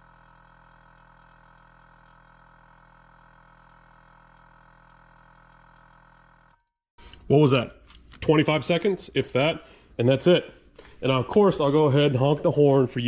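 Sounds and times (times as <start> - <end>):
small air compressor humming: 0.0 - 7.2.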